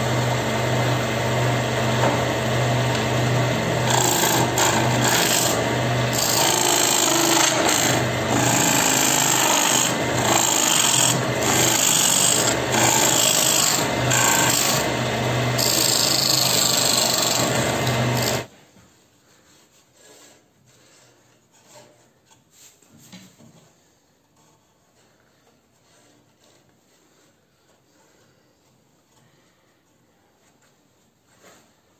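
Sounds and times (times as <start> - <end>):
lathe motor hum: 0.0 - 18.5
gouge rasping cut into wood: 1.7 - 18.5.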